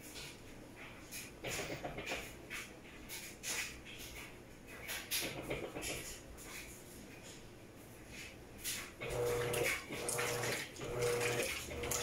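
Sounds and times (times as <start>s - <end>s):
washing machine sloshing water: 8.7s - 12.0s.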